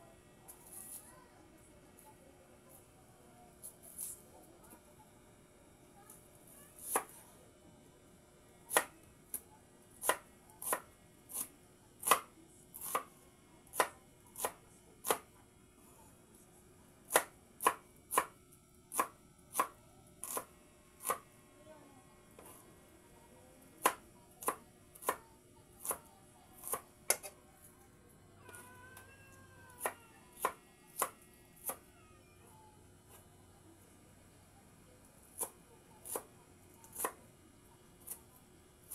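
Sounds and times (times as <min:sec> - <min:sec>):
knife chopping on cutting board: 0:10.0 - 0:13.1, 0:17.1 - 0:18.3, 0:18.9 - 0:21.2, 0:23.8 - 0:25.2, 0:25.8 - 0:27.4, 0:35.4 - 0:36.3.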